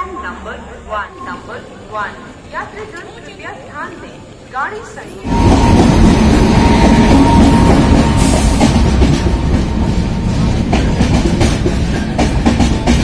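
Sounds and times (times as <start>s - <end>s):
train wheels rumbling on rails: 4.2s - 13.0s
locomotive whine: 5.1s - 13.0s.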